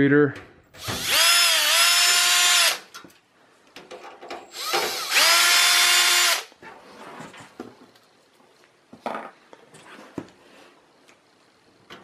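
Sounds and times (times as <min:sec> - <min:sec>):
cordless drill motor whine: 0:00.8 - 0:02.8, 0:04.5 - 0:06.5.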